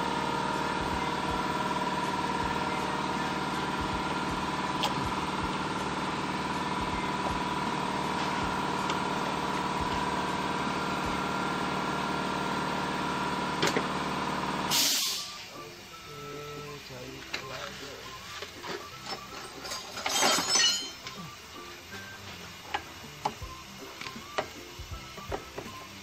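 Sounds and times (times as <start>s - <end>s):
motor idling drone: 0.0s - 19.1s.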